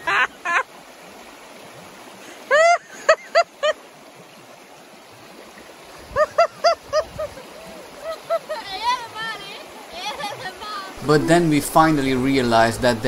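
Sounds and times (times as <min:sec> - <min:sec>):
river water running over rocks: 0:00.0 - 0:13.0
people crying out high-pitched: 0:02.5 - 0:02.8.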